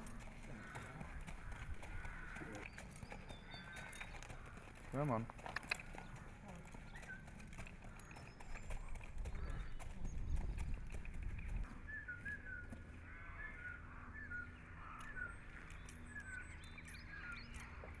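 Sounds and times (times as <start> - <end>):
horse hooves on sand: 0.0 - 13.0.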